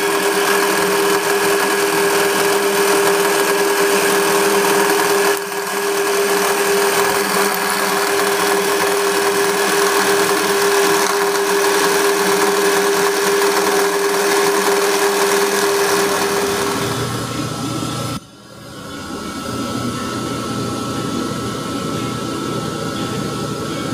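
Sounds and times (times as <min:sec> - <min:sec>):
milling machine cutting metal: 0:00.0 - 0:23.9.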